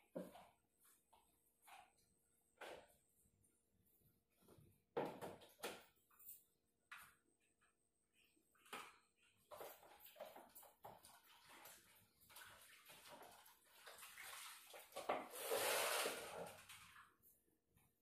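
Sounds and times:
faint water splashing: 9.6 - 17.2.

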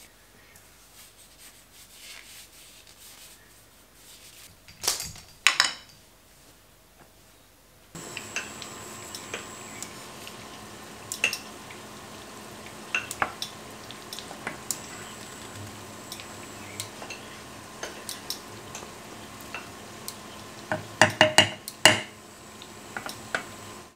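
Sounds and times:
faint steady sizzle: 6.3 - 23.9
wooden spoon stirring vegetables: 8.0 - 23.9
spoon tapping metal pan: 16.0 - 18.9, 19.5 - 22.2.

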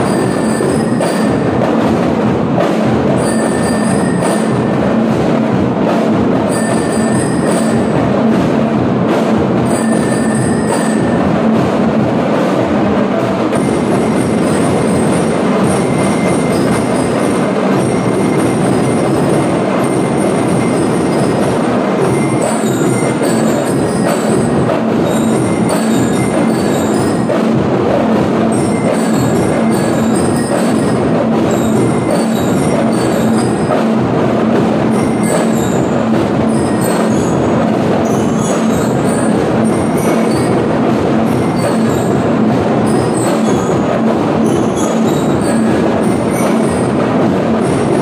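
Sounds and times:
bell lyres ringing a melody: 0.0 - 1.7, 3.1 - 5.0, 6.4 - 8.3, 9.6 - 11.7, 13.6 - 27.7, 34.8 - 47.1
marching drums beating: 0.0 - 48.0.

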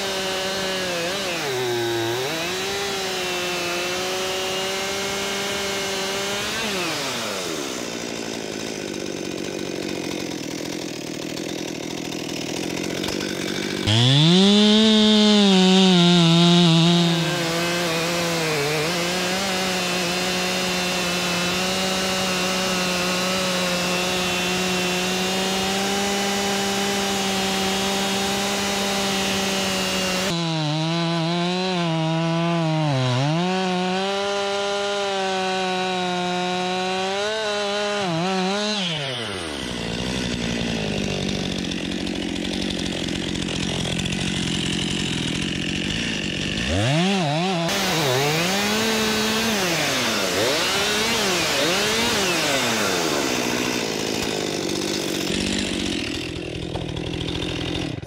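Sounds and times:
chainsaw cutting through log: 0.0 - 58.0.

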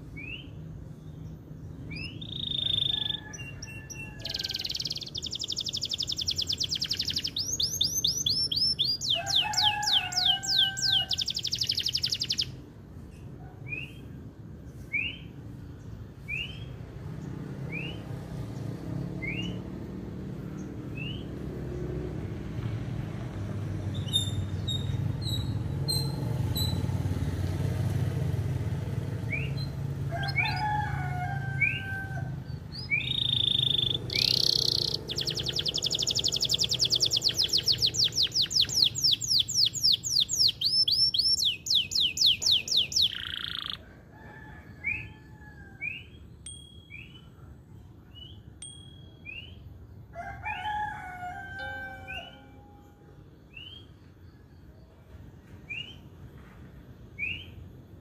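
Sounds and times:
canary singing: 0.0 - 12.7, 23.8 - 27.2, 29.0 - 52.9.

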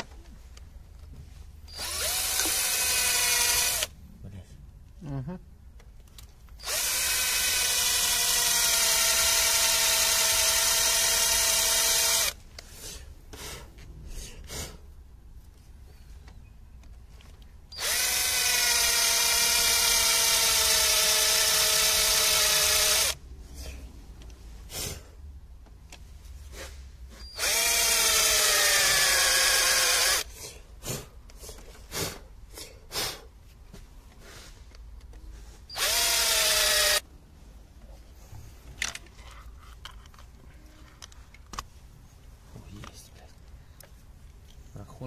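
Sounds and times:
cordless drill boring into metal: 1.7 - 3.9, 6.6 - 12.4, 17.7 - 23.2, 27.3 - 30.3, 35.7 - 37.0.

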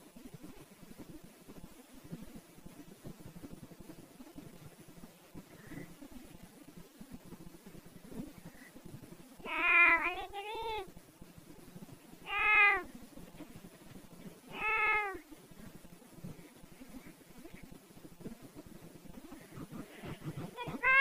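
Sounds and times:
animal crying out: 9.5 - 10.8, 12.3 - 12.9, 14.5 - 15.2, 20.5 - 21.0.

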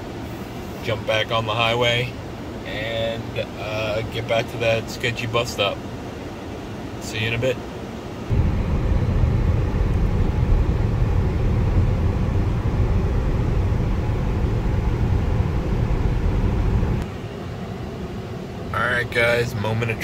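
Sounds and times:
climate fans running: 0.0 - 20.0
road and tyre rumble: 0.0 - 20.0
wind noise: 8.3 - 17.0.

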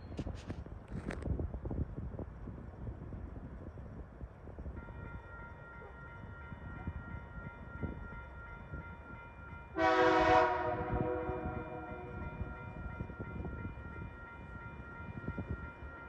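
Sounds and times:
locomotive horn blast: 9.8 - 12.2.

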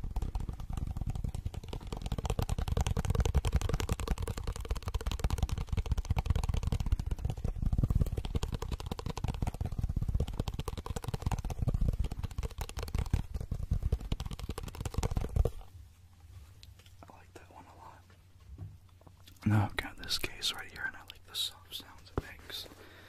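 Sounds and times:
fast fingertip tapping: 0.0 - 15.7.

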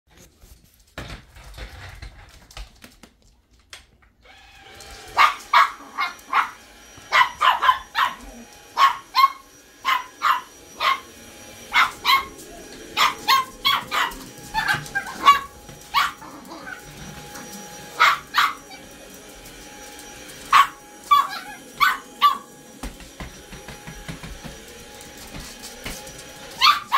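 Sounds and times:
vacuum cleaner motor humming: 4.2 - 26.9
small dog barking: 5.1 - 11.1, 11.7 - 16.9, 17.9 - 18.9, 20.5 - 22.5, 26.6 - 26.9.

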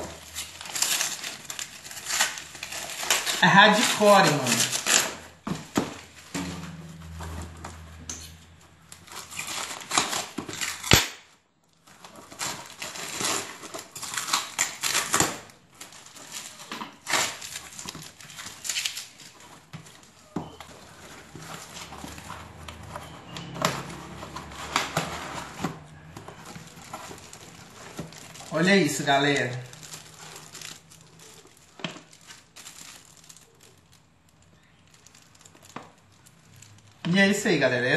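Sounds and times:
cardboard box being torn open: 0.0 - 6.1, 9.0 - 11.2, 12.0 - 20.2, 20.8 - 31.4
low steady hum: 6.2 - 9.2.

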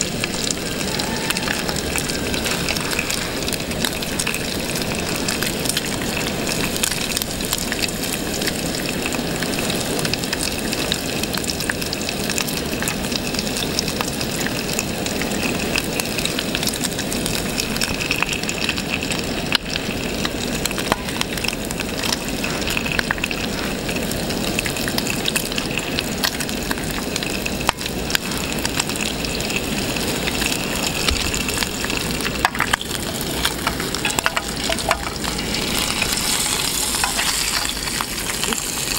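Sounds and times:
bacon sizzling and popping: 0.0 - 38.9.

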